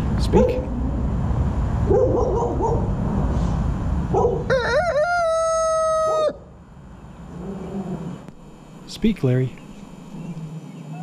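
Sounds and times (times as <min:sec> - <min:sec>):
rooster crowing: 0:04.2 - 0:06.6.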